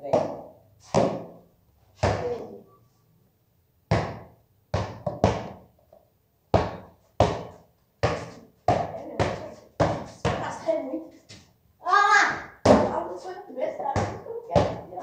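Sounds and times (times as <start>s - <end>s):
basketball bouncing on concrete: 0.0s - 1.4s, 2.0s - 2.6s, 3.9s - 5.7s, 6.5s - 10.8s, 12.6s - 13.0s, 13.8s - 15.0s.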